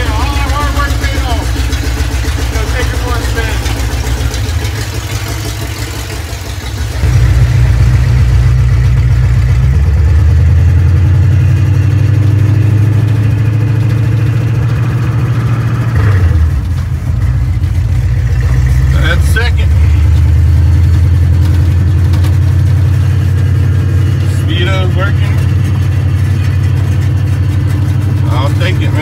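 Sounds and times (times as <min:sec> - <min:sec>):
truck engine running loud: 0:00.0 - 0:29.0.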